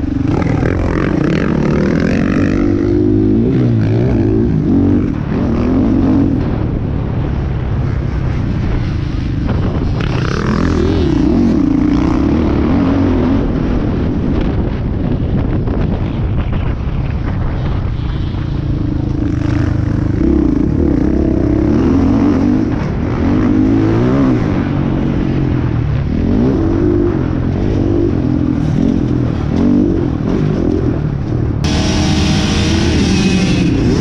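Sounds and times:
dirt bike engine revving: 0.0 - 6.6, 31.6 - 34.0.

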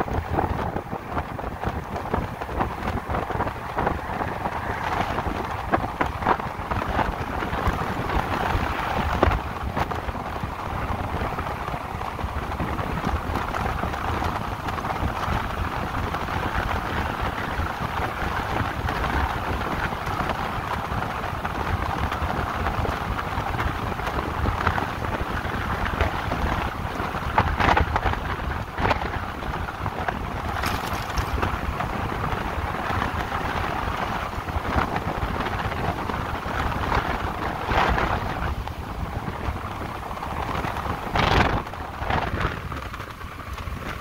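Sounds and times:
wind rush: 0.0 - 44.0
tyre noise: 30.4 - 31.9.

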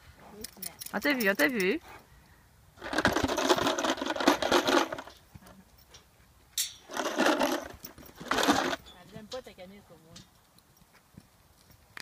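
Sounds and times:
metallic rattling and jangling: 0.4 - 1.8, 2.8 - 10.9.

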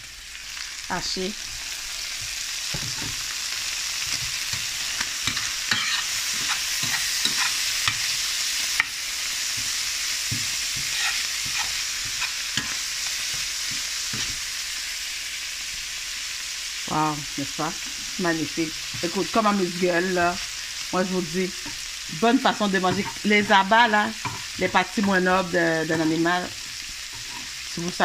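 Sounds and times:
meat sizzling in a frying pan: 0.0 - 28.0
utensil scraping a pan: 4.1 - 14.4, 22.5 - 25.2, 26.5 - 27.6.

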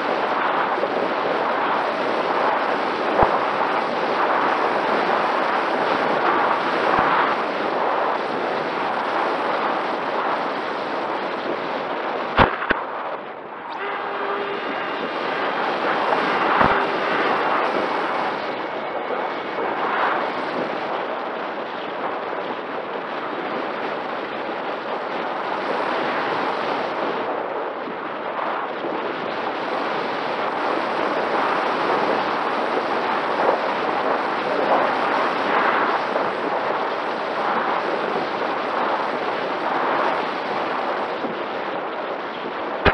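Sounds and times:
wind rushing over camera: 0.0 - 42.9
electric motor and propeller hum: 1.4 - 24.0.

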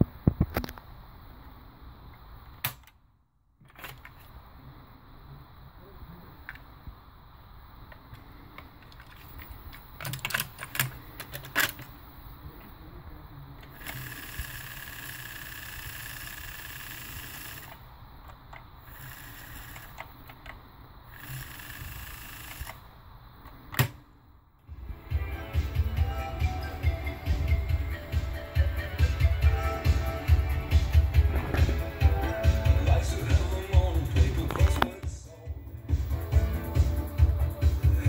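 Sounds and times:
tape transport whirring with hiss: 3.8 - 38.0
music playing from tape: 24.7 - 38.0.

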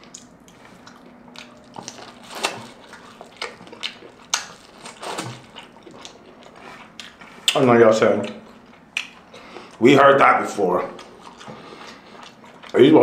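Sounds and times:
bite into taco: 0.0 - 7.6
wet chewing and smacking: 0.0 - 9.8, 10.8 - 13.0.

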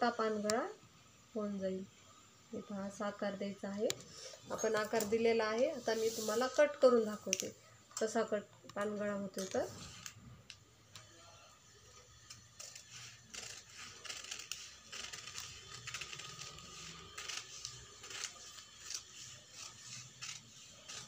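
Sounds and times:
scissors cutting newspaper: 12.1 - 21.0.

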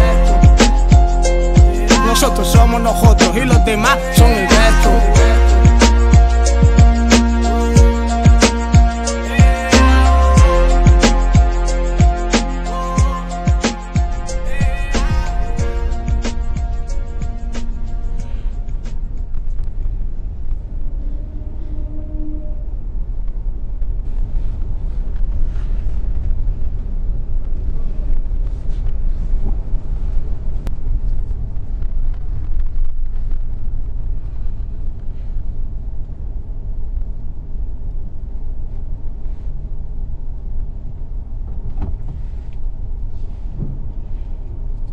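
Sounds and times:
car engine and road noise: 0.0 - 21.5.

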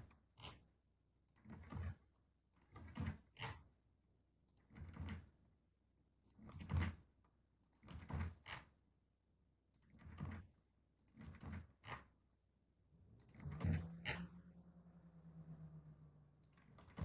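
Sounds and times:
keyboard and mouse clicks: 7.6 - 8.7, 9.7 - 12.2, 13.1 - 14.3, 16.4 - 17.0.

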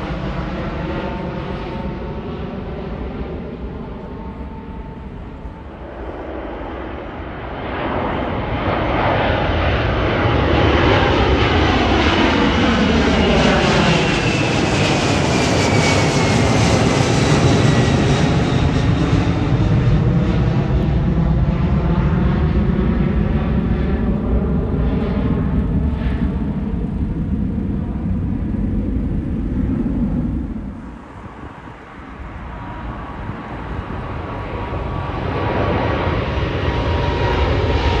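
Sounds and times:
jet engine noise: 0.0 - 38.0
jet whine falling in pitch: 0.1 - 7.4.

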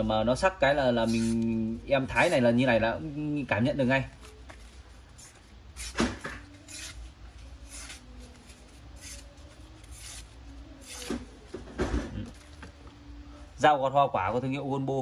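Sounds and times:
knife slicing through paper: 5.1 - 11.2.

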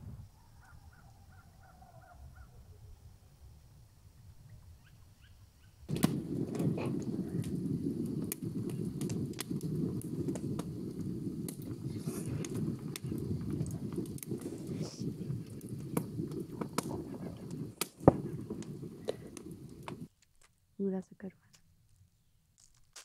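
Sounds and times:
fire crackling and popping: 5.8 - 20.6.

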